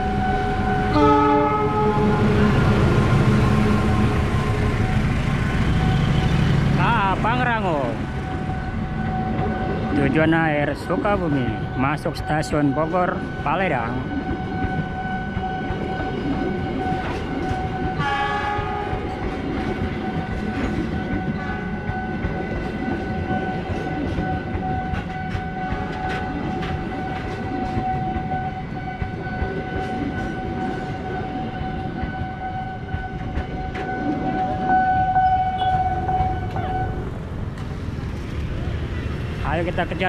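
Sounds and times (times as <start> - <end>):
crossing warning tone: 0.0 - 40.0
train rumble and wheel clatter: 0.0 - 40.0
train horn blast: 0.1 - 4.8, 17.9 - 19.1.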